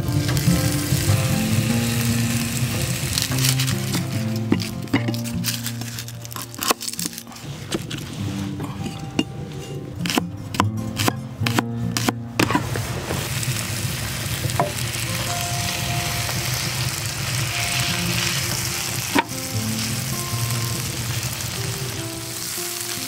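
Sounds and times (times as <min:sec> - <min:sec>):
bacon sizzling in a skillet: 0:00.0 - 0:07.3, 0:12.7 - 0:23.0
knife chopping on wooden board: 0:10.0 - 0:12.6.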